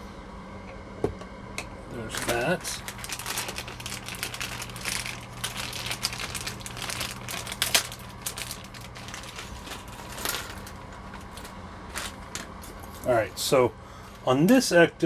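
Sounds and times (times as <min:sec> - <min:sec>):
plastic packaging crinkling: 0:02.1 - 0:13.1.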